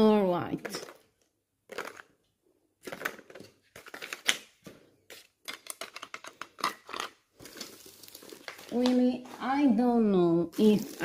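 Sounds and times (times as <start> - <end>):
plastic packaging crinkling and clicking: 1.7 - 2.2, 2.8 - 9.4.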